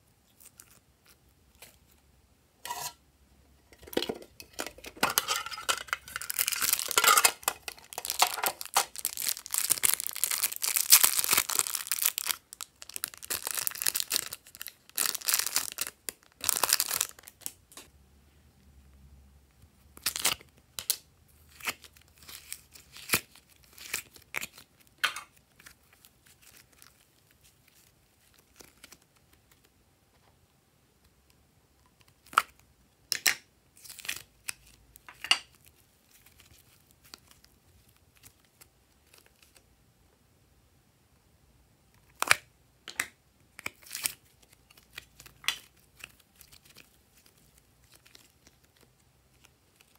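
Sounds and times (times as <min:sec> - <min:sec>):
plastic packaging crinkling: 0:04.0 - 0:17.9, 0:20.0 - 0:29.7, 0:43.6 - 0:49.9.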